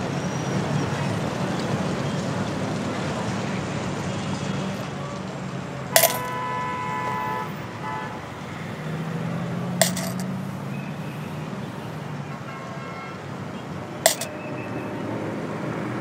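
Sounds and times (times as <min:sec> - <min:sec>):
city street traffic hum: 0:00.0 - 0:16.0
coin clinking into tin can: 0:06.0 - 0:06.4, 0:09.8 - 0:10.4, 0:14.0 - 0:14.4.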